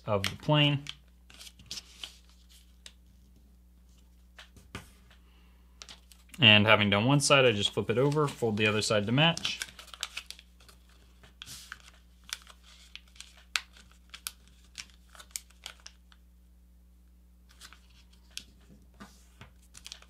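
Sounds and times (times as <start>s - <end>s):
paper folding and crinkling: 0.2s - 4.6s, 7.4s - 16.2s, 17.5s - 20.0s.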